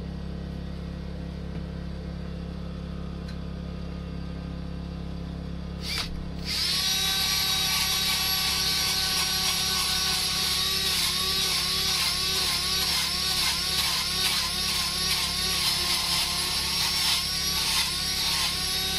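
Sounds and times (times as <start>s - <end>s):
power tool whining: 5.8s - 18.9s.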